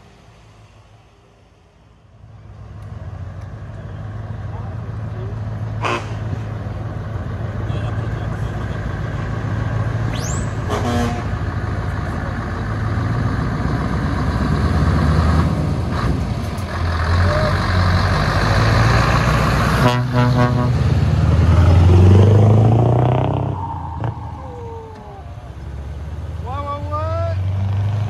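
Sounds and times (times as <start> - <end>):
diesel truck engine pulling away: 2.4 - 28.0
truck horn toots: 5.8 - 6.4, 7.6 - 8.8, 10.5 - 11.4, 19.7 - 21.0.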